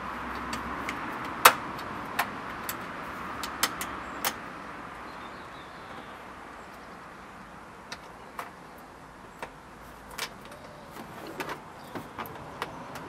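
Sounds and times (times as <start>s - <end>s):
nuts and washers clicking: 0.1s - 4.5s, 7.8s - 13.0s.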